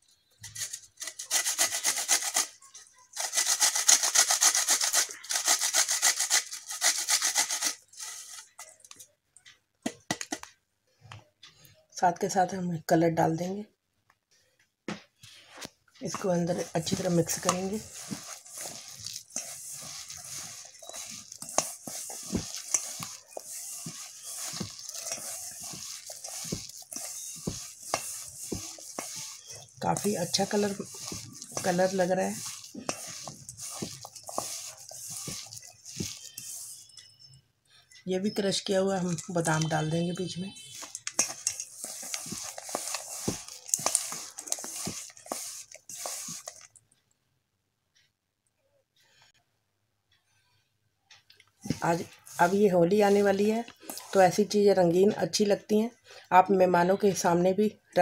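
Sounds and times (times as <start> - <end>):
hand kneading moist mixture: 16.0 - 36.9, 38.5 - 46.9, 51.6 - 55.5
fingers clicking on steel bowl: 16.6 - 36.8, 40.7 - 46.7.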